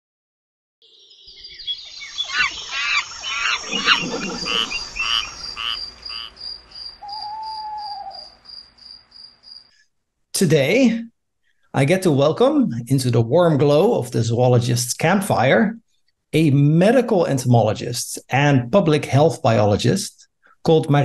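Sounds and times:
frogs chirping and croaking: 0.8s - 9.7s
high insect trill: 1.8s - 9.7s.

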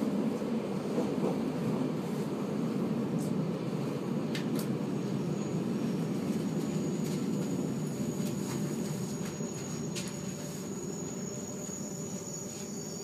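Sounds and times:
train wheels rumbling on rails: 0.0s - 13.0s
faint high whine: 5.1s - 13.0s.

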